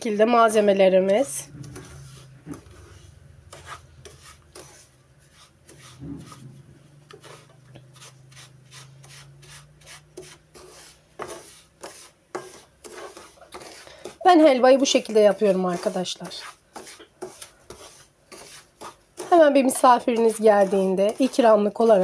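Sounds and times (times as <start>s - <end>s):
low steady hum: 0.0s - 11.6s
wooden spoon scraping a pan: 1.0s - 22.0s.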